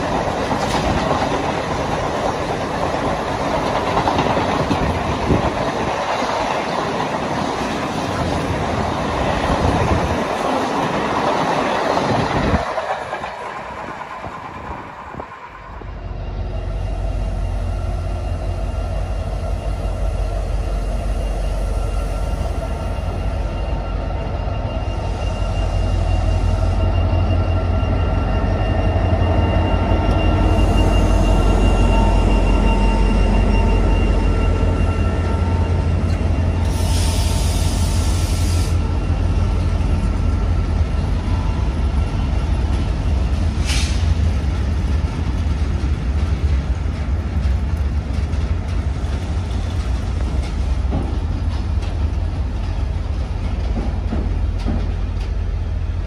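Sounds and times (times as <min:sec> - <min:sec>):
diesel locomotive engine rumble: 0:00.0 - 0:56.0
wagons rolling with wheel squeal: 0:19.1 - 0:38.0
hiss: 0:36.6 - 0:38.8, 0:43.5 - 0:44.3.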